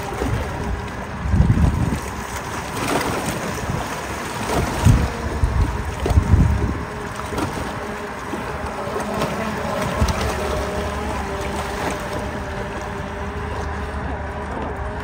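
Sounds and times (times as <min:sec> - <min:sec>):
rushing water and wind: 0:00.0 - 0:15.0
electric motor whine: 0:04.4 - 0:15.0.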